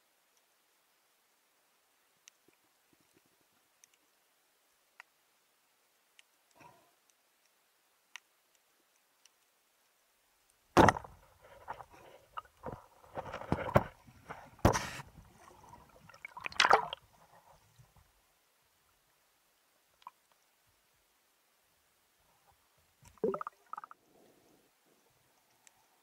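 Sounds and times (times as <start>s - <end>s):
faint underwater clicks: 2.1s - 9.6s, 19.9s - 20.7s, 25.0s - 26.0s
water splashing and sloshing: 10.8s - 18.0s, 23.0s - 24.0s.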